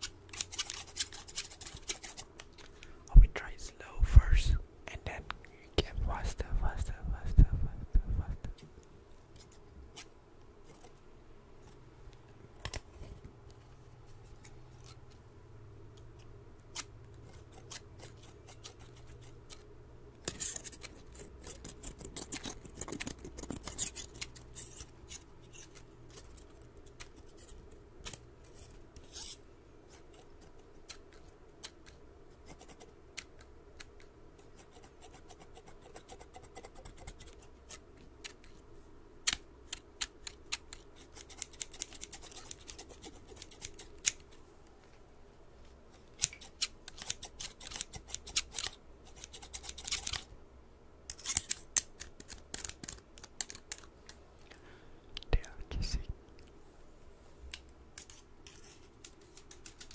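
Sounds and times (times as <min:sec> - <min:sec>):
scissors snipping: 0:39.2 - 0:44.3, 0:46.2 - 0:50.3, 0:51.1 - 0:53.9, 0:57.5 - 0:59.9.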